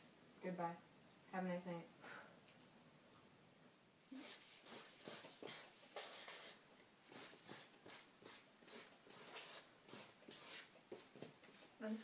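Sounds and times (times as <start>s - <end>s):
marker stroking on paper: 4.2s - 12.0s.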